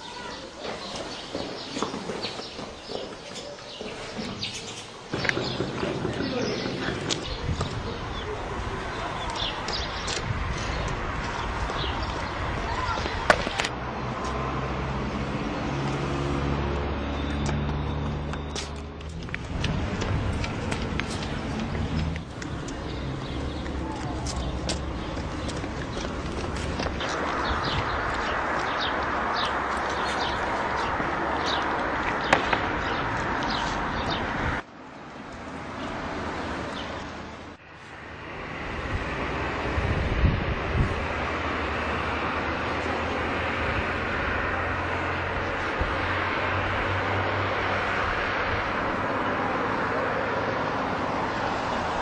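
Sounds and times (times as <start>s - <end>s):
vehicle engine humming: 5.0s - 52.0s
soft wind-like rush: 7.2s - 15.5s, 19.2s - 49.1s
steady rushing noise: 24.3s - 34.7s.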